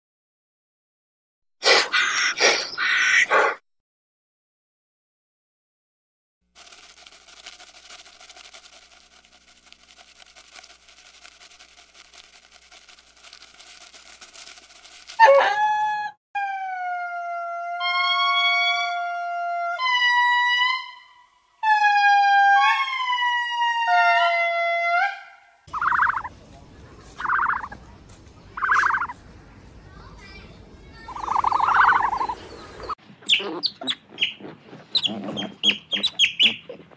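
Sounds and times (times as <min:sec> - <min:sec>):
lemur wailing calls: 0:25.7 - 0:26.3, 0:28.6 - 0:29.1, 0:31.1 - 0:34.4.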